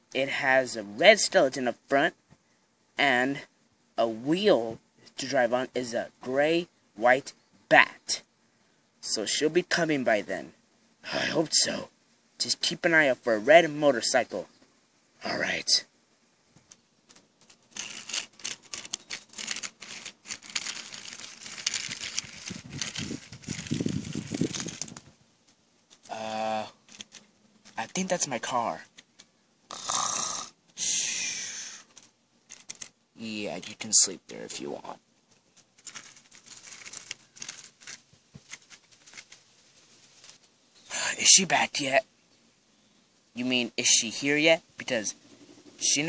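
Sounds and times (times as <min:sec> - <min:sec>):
toy car crunching through dirt: 0:17.1 - 0:25.1, 0:25.9 - 0:29.1, 0:35.6 - 0:39.5.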